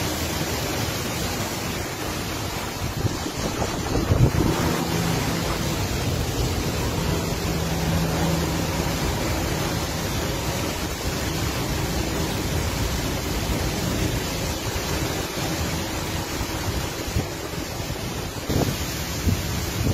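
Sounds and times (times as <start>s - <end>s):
steady rain falling: 0.0s - 19.9s.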